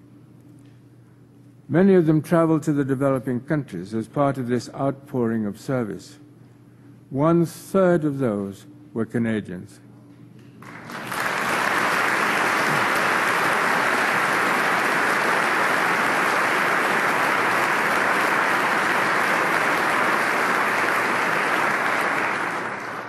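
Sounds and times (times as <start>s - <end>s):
audience applauding: 10.6s - 23.0s.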